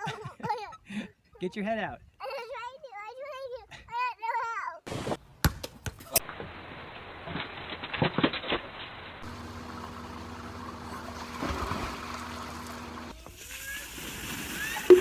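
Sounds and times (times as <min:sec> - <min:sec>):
person jumping into pool splash: 0:06.1 - 0:09.4, 0:10.8 - 0:15.0.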